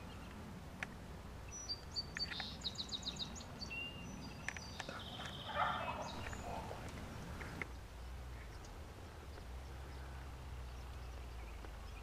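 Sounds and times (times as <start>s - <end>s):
outdoor background noise: 0.0s - 12.0s
songbirds singing: 0.0s - 12.0s.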